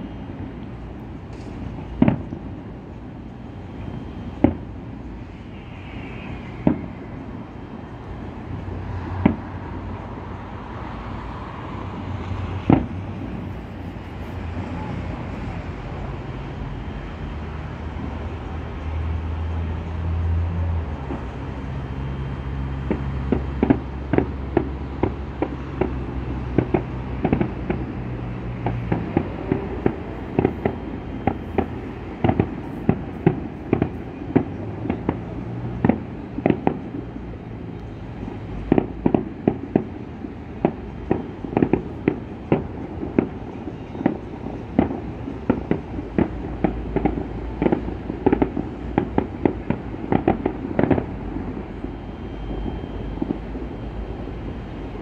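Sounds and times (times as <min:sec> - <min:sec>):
fireworks bangs: 0:01.2 - 0:02.8, 0:03.7 - 0:09.8, 0:12.4 - 0:15.6, 0:22.8 - 0:37.1, 0:38.1 - 0:54.8.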